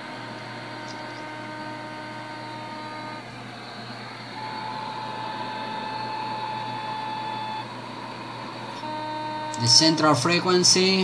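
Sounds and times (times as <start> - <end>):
radio hiss: 8.9 - 11.0.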